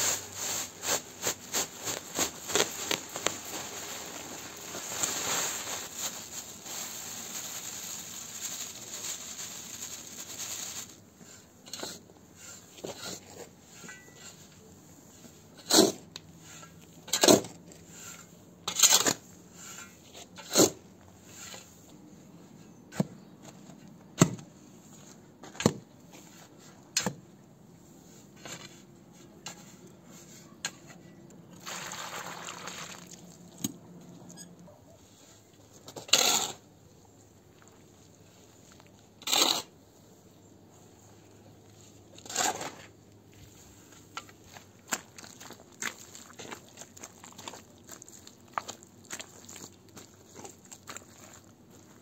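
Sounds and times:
spade scraping dry soil: 0:00.0 - 0:05.2, 0:10.8 - 0:21.9, 0:28.0 - 0:31.0, 0:35.2 - 0:36.7, 0:38.4 - 0:39.8, 0:41.8 - 0:44.3
longer hiss of soil: 0:00.0 - 0:11.5.

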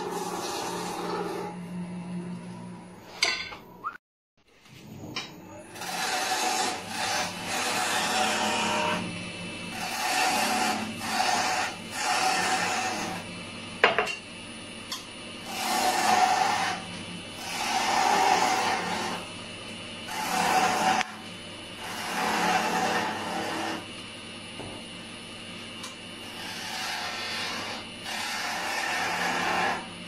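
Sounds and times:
tool scraping wood on lathe: 0:00.0 - 0:01.6, 0:05.7 - 0:09.1, 0:09.7 - 0:13.3, 0:15.4 - 0:19.3, 0:20.1 - 0:23.9, 0:26.2 - 0:29.9
lathe humming: 0:00.0 - 0:02.9, 0:05.7 - 0:13.4, 0:15.4 - 0:19.4, 0:20.0 - 0:24.4, 0:25.3 - 0:30.0.

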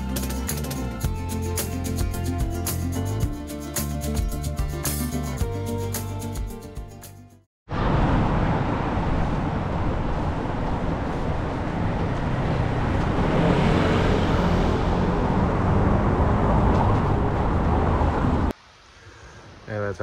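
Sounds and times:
deep rumble: 0:07.7 - 0:18.5
road traffic noise: 0:07.7 - 0:18.6.

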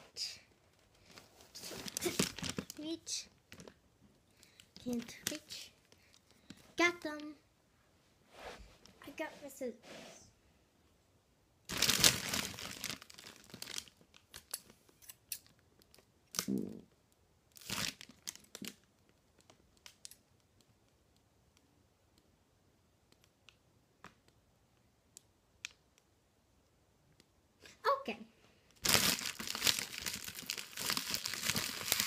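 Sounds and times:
plastic wrap crinkling: 0:00.7 - 0:03.8, 0:11.7 - 0:14.8, 0:17.5 - 0:20.2, 0:28.8 - 0:32.0.

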